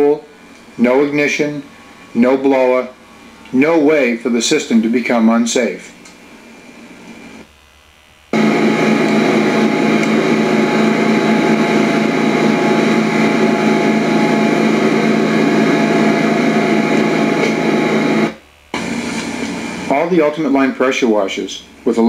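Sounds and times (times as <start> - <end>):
pressure washer humming: 8.3 - 20.2.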